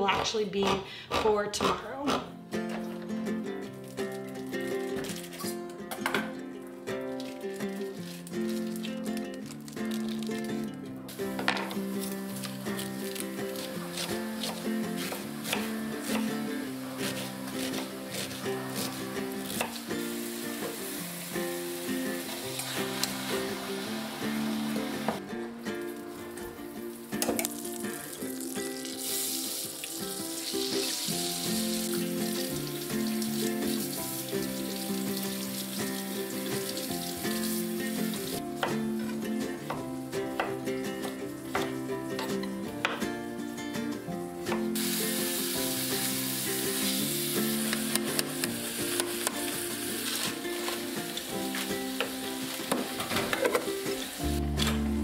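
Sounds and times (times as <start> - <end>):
background music with held notes: 2.1 - 55.0
meat sizzling in a skillet: 11.1 - 25.2, 26.8 - 38.4, 44.8 - 54.6.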